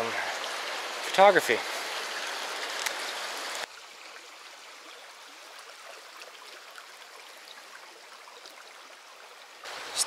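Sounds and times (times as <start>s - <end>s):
loud water rush: 0.0s - 3.7s, 9.6s - 10.0s
creek water over rocks: 0.0s - 10.0s.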